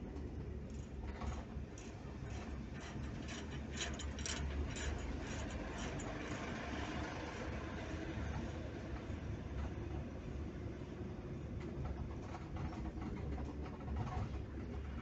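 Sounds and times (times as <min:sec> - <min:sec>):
engine and road rumble: 0:00.0 - 0:15.0
light clicks and rattles: 0:00.2 - 0:06.2.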